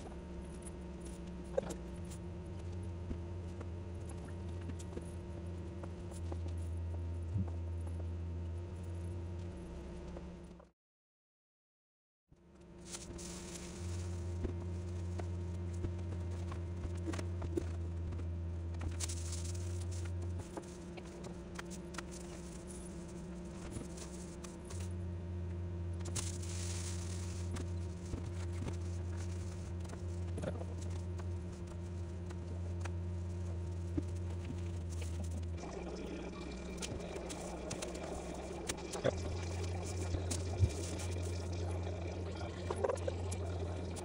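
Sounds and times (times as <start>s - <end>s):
steady low hum: 0.0s - 10.7s, 12.4s - 44.0s
aluminium foil crinkling: 26.1s - 31.1s.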